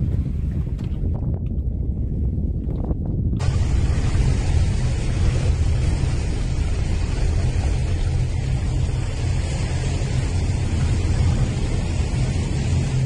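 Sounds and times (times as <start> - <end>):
boat engine rumbling: 0.0 - 13.0
wind and sea noise: 0.0 - 13.0.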